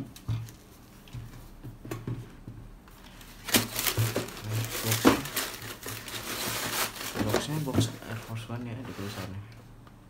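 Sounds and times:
tissue paper crinkling: 0:03.0 - 0:09.4.

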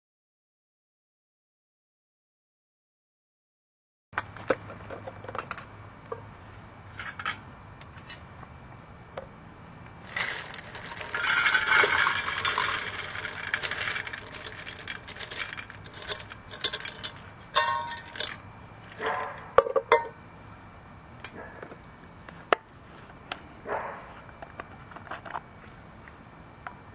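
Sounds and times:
wood pieces rattling in metal can: 0:10.0 - 0:18.4
sharp metal clinks: 0:15.9 - 0:18.4.

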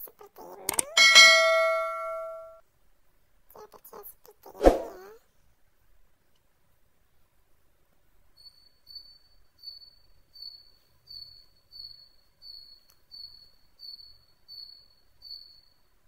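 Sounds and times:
cricket chirping: 0:08.3 - 0:16.0.

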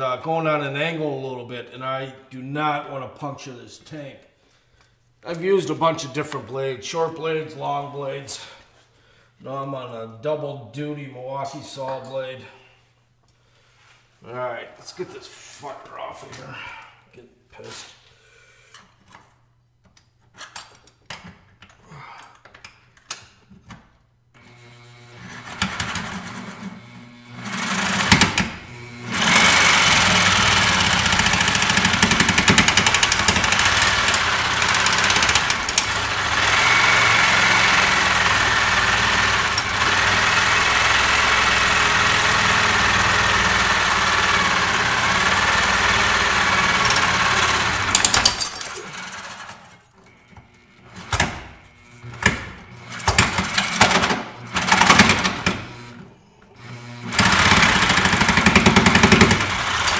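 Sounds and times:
reciprocating saw cutting metal: 0:27.3 - 0:49.5.

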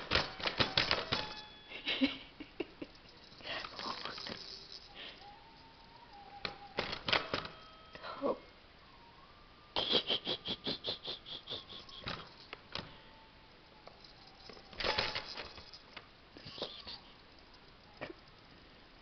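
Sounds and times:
toy rattling: 0:00.0 - 0:02.2, 0:02.8 - 0:07.9, 0:10.8 - 0:18.6.

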